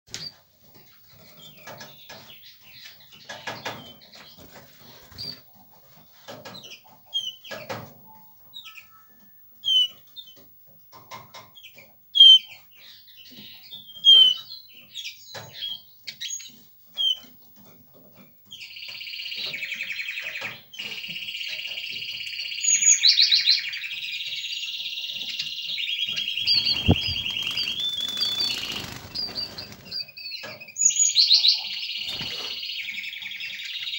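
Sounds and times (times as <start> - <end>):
twittering bird song with trills: 6.6 - 10.5, 18.2 - 33.9
bird chirps and calls: 25.1 - 33.9
wing flutters: 26.4 - 30.1, 32.1 - 32.6.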